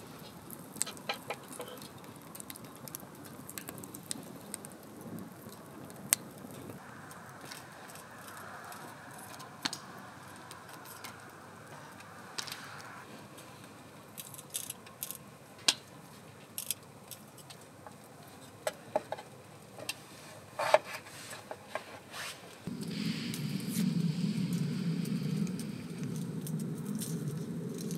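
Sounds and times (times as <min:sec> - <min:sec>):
soft even hiss: 0:22.0 - 0:27.9.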